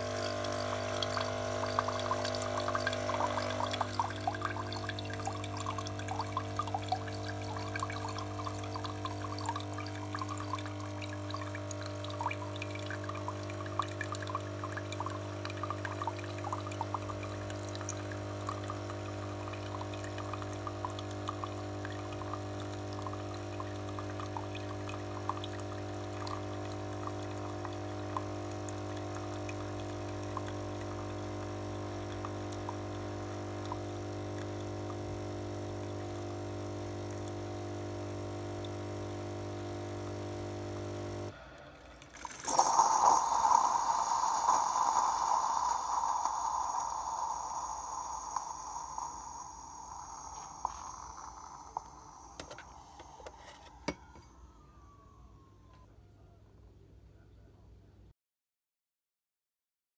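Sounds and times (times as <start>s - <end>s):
water trickling into glass: 0.0s - 37.6s, 41.6s - 54.4s
coffee machine pump humming: 0.0s - 54.6s
hissing sputter: 41.6s - 54.2s.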